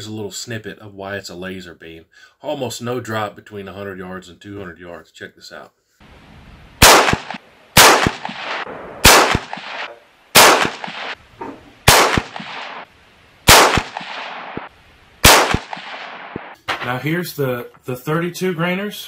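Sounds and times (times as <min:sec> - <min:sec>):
rifle shots: 0:06.8 - 0:11.2, 0:11.8 - 0:17.0.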